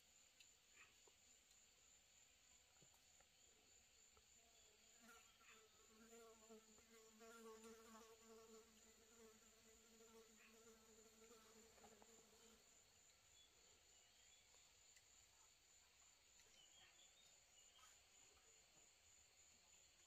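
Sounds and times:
flying insect buzzing: 0:05.0 - 0:12.8.

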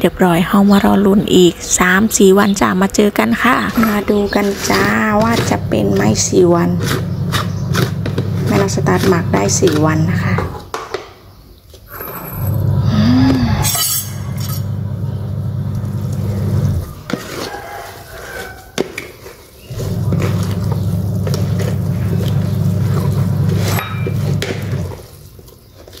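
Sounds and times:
spoon scraping in plastic jar: 0:03.6 - 0:10.6, 0:16.8 - 0:26.0.

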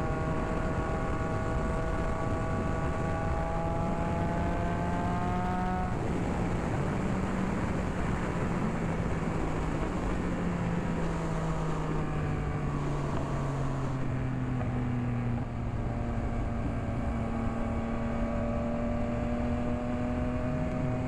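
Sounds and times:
wind rush: 0:00.0 - 0:14.0
motorcycle engine running: 0:00.0 - 0:21.0.

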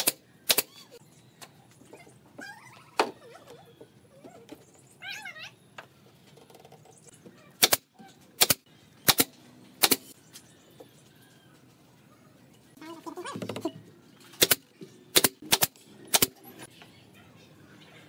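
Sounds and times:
faint wavering animal calls: 0:00.6 - 0:05.7.

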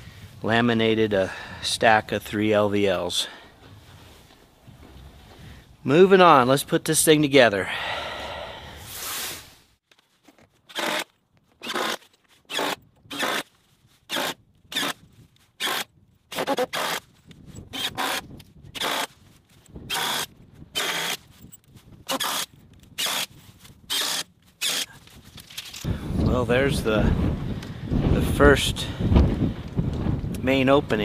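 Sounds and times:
impact driver driving screws: 0:10.7 - 0:13.5, 0:14.1 - 0:15.0, 0:15.6 - 0:19.2, 0:19.9 - 0:21.2, 0:22.1 - 0:23.3, 0:23.9 - 0:24.9.

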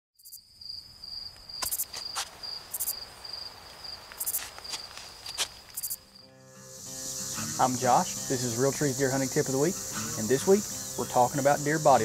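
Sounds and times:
crickets chirping: 0:00.2 - 0:12.0.

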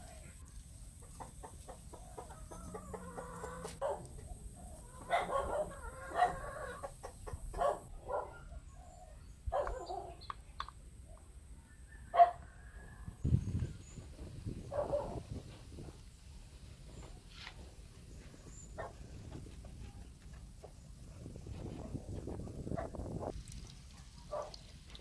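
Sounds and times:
chickens clucking: 0:00.6 - 0:08.2.

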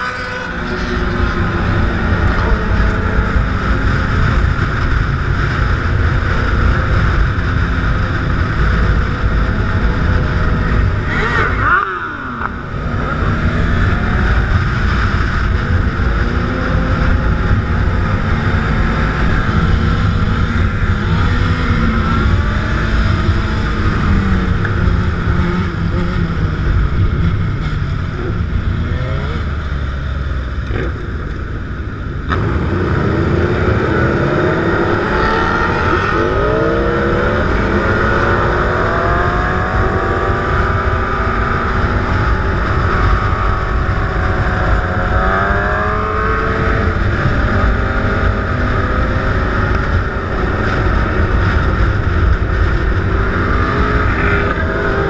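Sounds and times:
motorcycle engines revving: 0:00.0 - 0:55.0
wind noise on microphone: 0:30.9 - 0:55.0.

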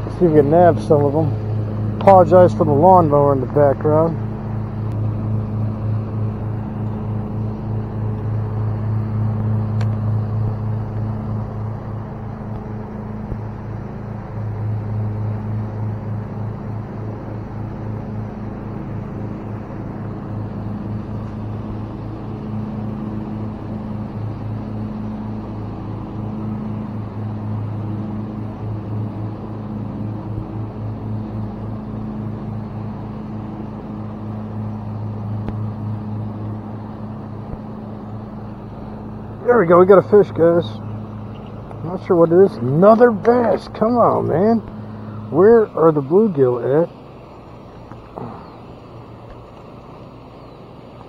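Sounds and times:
lawnmower engine humming: 0:00.0 - 0:51.0.

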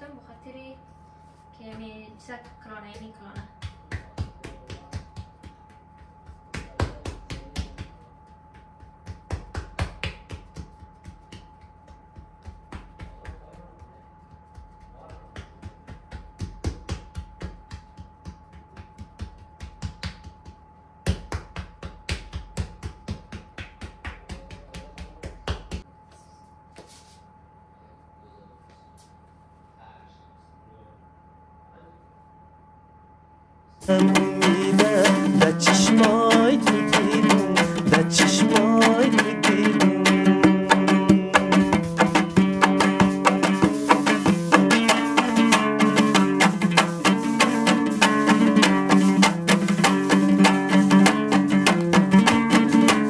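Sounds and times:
faint steady hum: 0:00.0 - 0:42.6
quick sharp knocks: 0:33.8 - 0:53.0.

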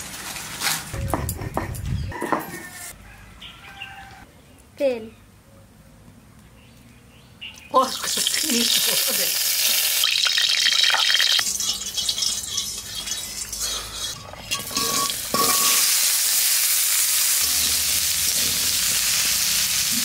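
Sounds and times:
oil sizzling in a wok: 0:07.9 - 0:20.0
metal spatula stirring: 0:11.4 - 0:16.0.

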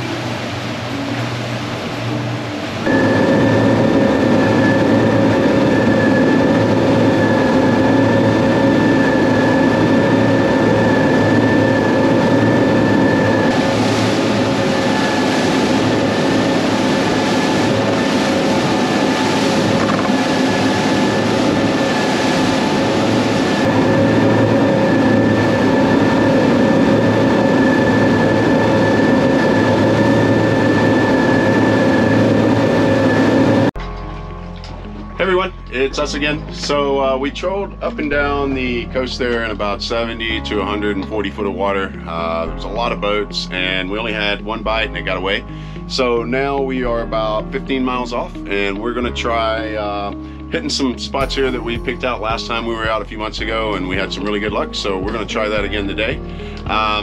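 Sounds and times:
outboard engines running: 0:00.0 - 0:33.7
wind and water rushing: 0:00.0 - 0:33.7.

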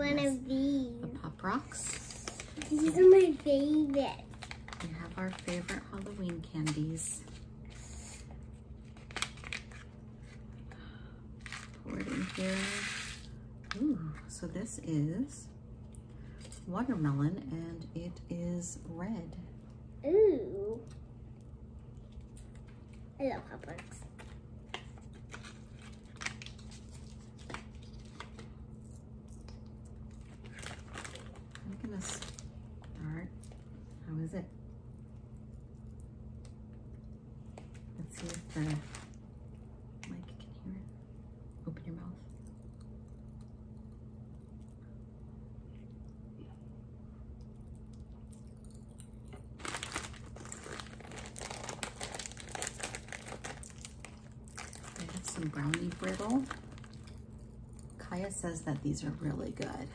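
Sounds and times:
snack bag crackling: 0:01.9 - 0:06.2, 0:07.3 - 0:10.4, 0:23.7 - 0:33.6, 0:48.3 - 0:58.0
popping candy crackling: 0:48.7 - 0:58.4.

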